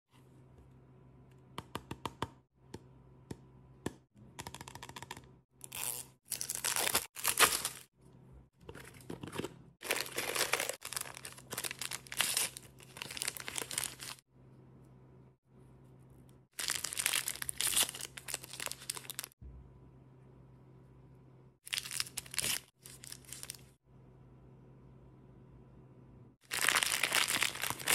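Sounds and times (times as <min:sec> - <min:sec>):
wrapping tearing and crinkling: 0:05.7 - 0:07.9, 0:09.8 - 0:14.2, 0:16.6 - 0:19.4, 0:21.7 - 0:23.8, 0:26.4 - 0:27.9.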